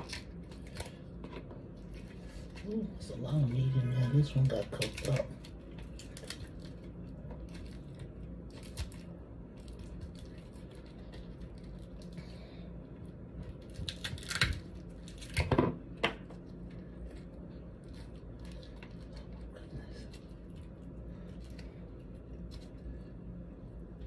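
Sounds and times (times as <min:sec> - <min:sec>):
crab shells cracking: 0:00.0 - 0:01.3, 0:04.6 - 0:12.2, 0:13.4 - 0:16.1
faint low hum: 0:00.0 - 0:24.0.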